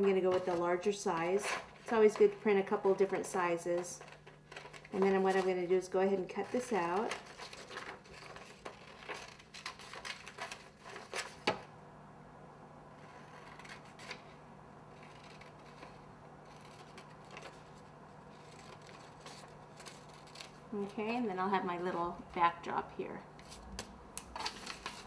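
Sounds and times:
paper rustling: 0:00.0 - 0:11.6, 0:14.9 - 0:20.7, 0:23.4 - 0:25.0
low steady hum: 0:00.0 - 0:25.0.

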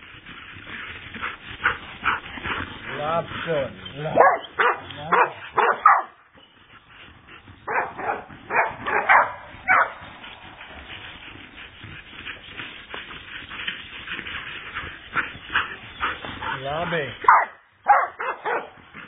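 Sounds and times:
dog barking: 0:04.1 - 0:06.1, 0:07.7 - 0:10.0, 0:17.2 - 0:18.8.

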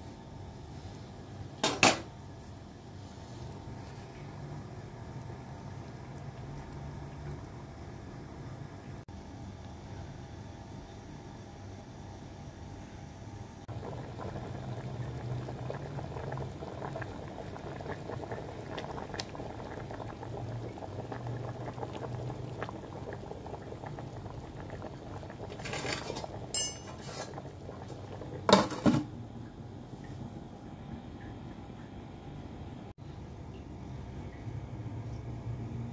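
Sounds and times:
gravy bubbling and popping: 0:02.4 - 0:09.0, 0:13.7 - 0:32.8
pot lid clanking: 0:25.6 - 0:27.4.

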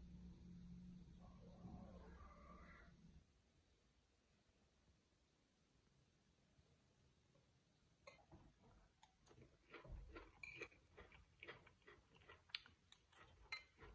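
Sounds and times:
man chewing: 0:09.0 - 0:13.9.

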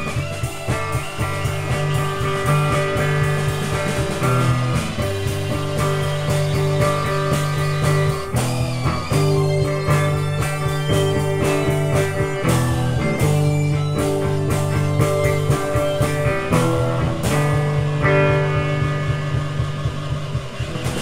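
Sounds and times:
drumming: 0:00.0 - 0:21.0
electric guitar chords: 0:00.0 - 0:21.0.

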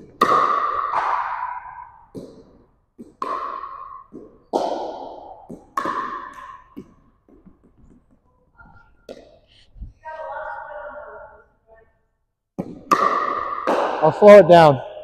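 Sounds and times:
paddles hitting pickleball: 0:00.0 - 0:08.2, 0:09.1 - 0:09.5, 0:12.6 - 0:15.0.

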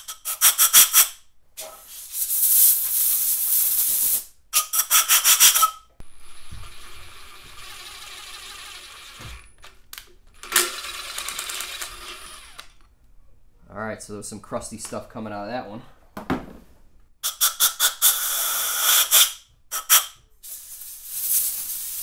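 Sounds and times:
compressed air blow gun hissing: 0:17.2 - 0:22.0.

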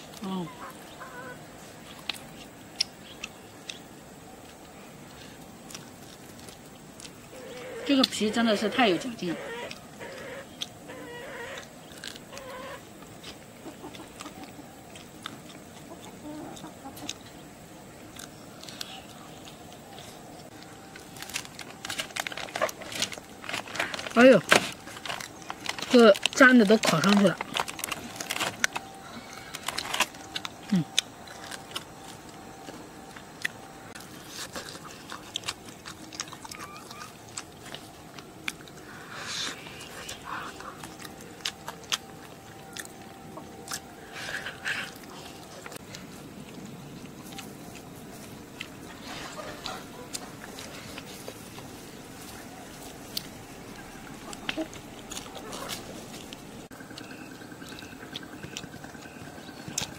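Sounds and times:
hen clucking: 0:00.2 - 0:01.5, 0:07.3 - 0:11.7, 0:12.3 - 0:14.8, 0:48.9 - 0:51.1, 0:52.5 - 0:56.4
person biting and chewing: 0:11.6 - 0:12.5, 0:33.2 - 0:47.9
person chewing: 0:11.6 - 0:17.4, 0:18.0 - 0:24.1, 0:27.4 - 0:51.7, 0:52.3 - 0:59.9.

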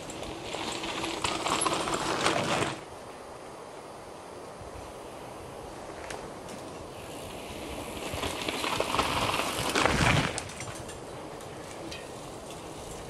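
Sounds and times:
bike tyres rolling over dirt: 0:00.0 - 0:13.0.

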